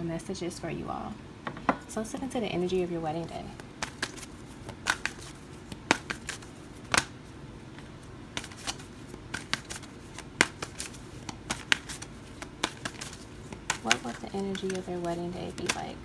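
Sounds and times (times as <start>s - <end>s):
cards being shuffled: 3.6s - 16.0s.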